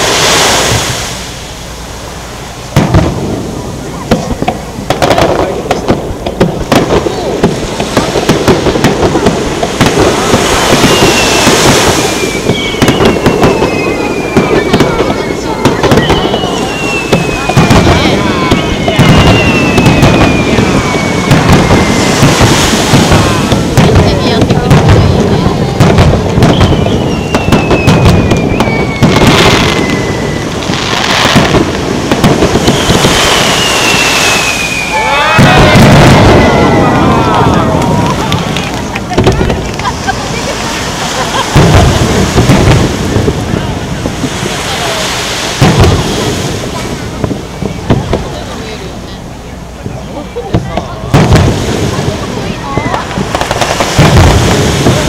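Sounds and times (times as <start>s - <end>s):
fireworks bangs and crackles: 0.0s - 55.0s
firework whistle sliding down: 10.5s - 23.5s, 26.4s - 31.4s, 32.6s - 38.3s.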